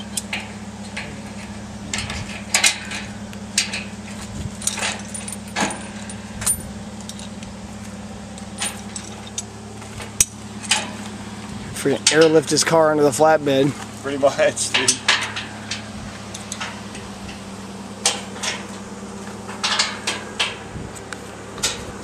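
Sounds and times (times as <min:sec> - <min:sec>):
steady low hum: 0:00.0 - 0:22.0
metallic clinks and rattles of hooks: 0:04.6 - 0:07.4, 0:08.4 - 0:09.5.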